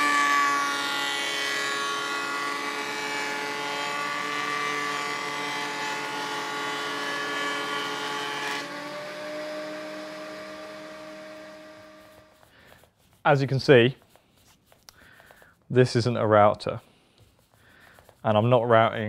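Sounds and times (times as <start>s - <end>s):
planer machine whine: 0.0s - 12.5s
board being planed: 0.0s - 12.9s.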